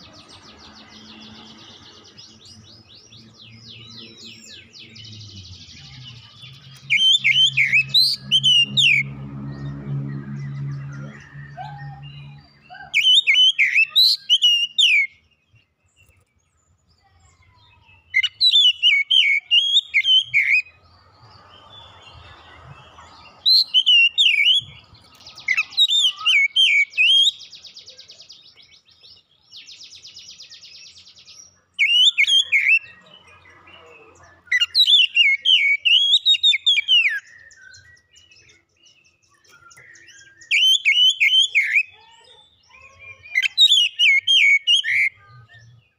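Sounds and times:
bird harsh rasping chatter: 0:00.0 - 0:09.1, 0:18.2 - 0:27.3
bird singing whistled phrases: 0:06.8 - 0:09.0, 0:10.9 - 0:15.2, 0:17.9 - 0:20.8, 0:23.5 - 0:24.8, 0:25.4 - 0:27.6, 0:31.8 - 0:33.0, 0:34.5 - 0:38.6, 0:39.4 - 0:42.0, 0:42.8 - 0:45.8.

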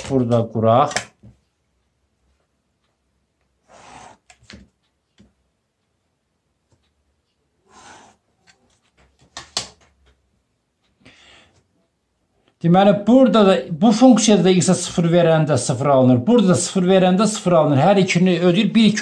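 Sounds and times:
pen scratching along ruler: 0:03.6 - 0:04.5, 0:07.6 - 0:08.6.

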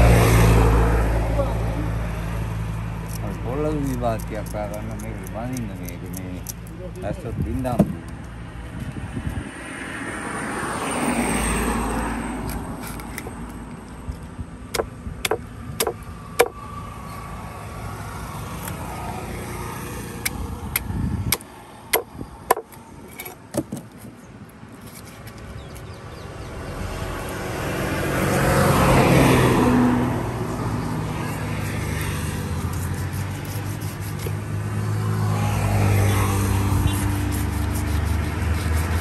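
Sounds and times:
motor vehicle passing: 0:07.9 - 0:13.8, 0:25.5 - 0:39.0
knife chopping on wooden block: 0:14.8 - 0:16.6, 0:21.3 - 0:23.9.

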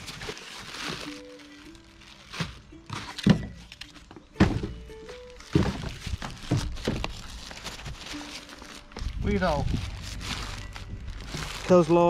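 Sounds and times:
soft background music: 0:00.0 - 0:12.0
boxes thudding on a table: 0:02.9 - 0:03.6, 0:04.4 - 0:04.9, 0:05.5 - 0:07.0.

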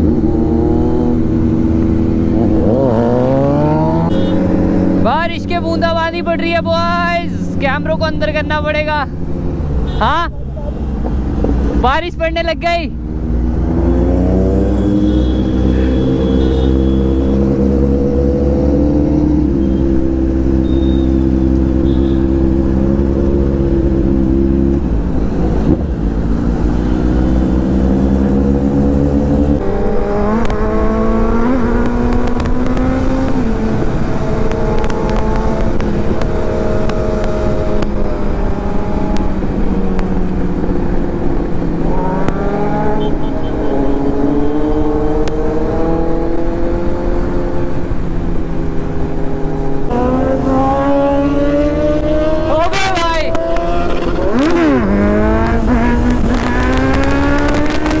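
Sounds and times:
motorcycle engine accelerating: 0:00.0 - 0:05.9, 0:13.0 - 0:58.0
wind rushing over microphone: 0:22.3 - 0:43.0, 0:43.7 - 0:58.0.

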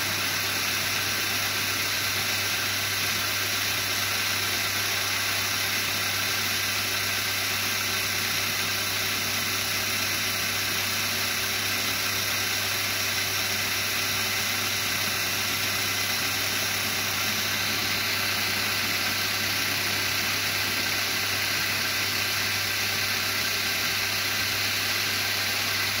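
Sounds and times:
model locomotive motor whirring: 0:00.0 - 0:26.0.

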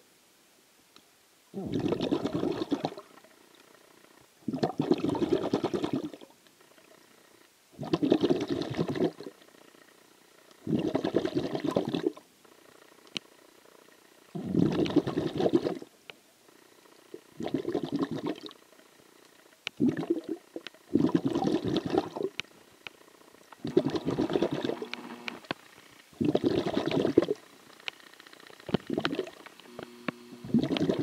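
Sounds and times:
breath bubbling underwater: 0:01.6 - 0:03.1, 0:04.4 - 0:06.3, 0:07.8 - 0:09.4, 0:10.6 - 0:12.2, 0:14.4 - 0:15.9, 0:17.2 - 0:18.6, 0:19.8 - 0:22.4, 0:23.6 - 0:25.0, 0:26.2 - 0:27.4, 0:28.8 - 0:29.4, 0:30.4 - 0:31.0.

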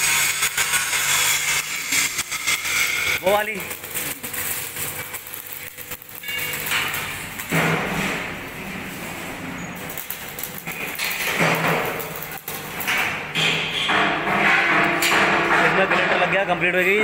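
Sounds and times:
angle grinder grinding metal: 0:00.0 - 0:06.9.

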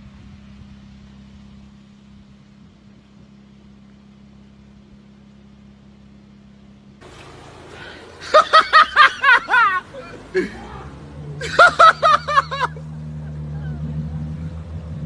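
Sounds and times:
vehicle engine idling: 0:00.0 - 0:15.0
bursts of laughter: 0:08.2 - 0:13.9.

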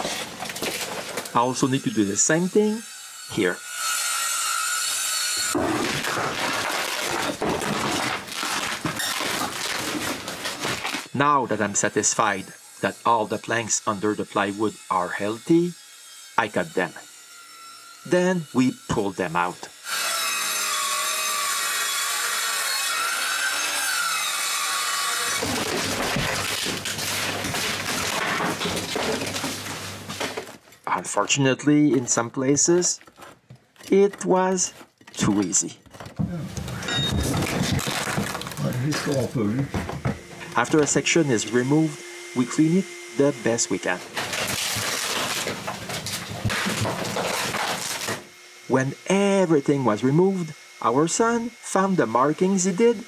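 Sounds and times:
power saw cutting wood: 0:00.0 - 0:36.0, 0:36.6 - 0:53.0
wooden scraping and knocking: 0:25.4 - 0:30.8, 0:31.9 - 0:41.0, 0:44.2 - 0:48.2.

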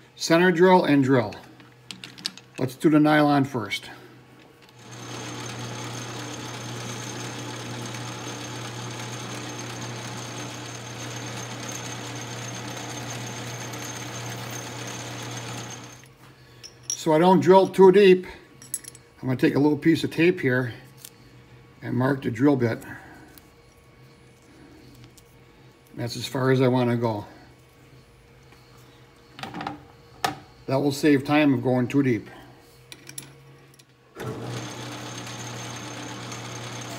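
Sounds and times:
lathe motor humming with whine: 0:04.7 - 0:16.1, 0:34.2 - 0:36.9.

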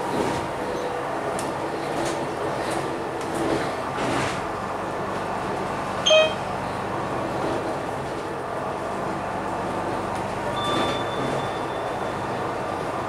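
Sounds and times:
bus engine and road noise: 0:00.0 - 0:13.0
short loud beep: 0:06.0 - 0:06.4
faint high tone: 0:06.1 - 0:06.4.

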